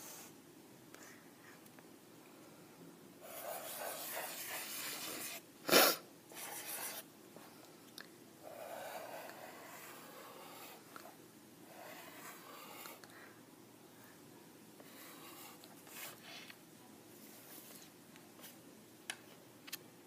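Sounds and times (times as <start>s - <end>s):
marker squeaking on paper: 3.3s - 5.4s, 8.5s - 10.8s.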